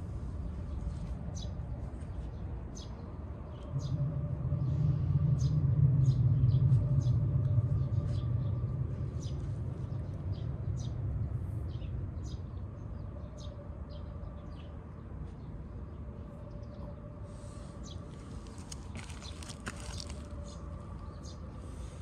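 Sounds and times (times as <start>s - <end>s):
vehicle passing by: 3.2s - 14.1s
birds chirping: 15.9s - 22.0s.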